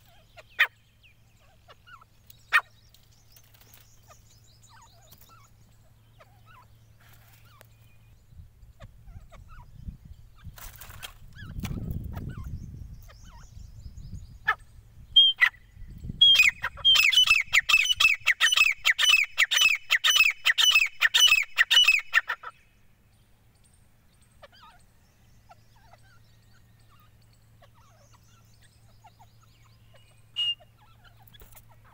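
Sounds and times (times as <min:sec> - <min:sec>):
bird calling repeated falling notes: 0:15.2 - 0:15.6, 0:16.2 - 0:22.5, 0:30.0 - 0:31.9.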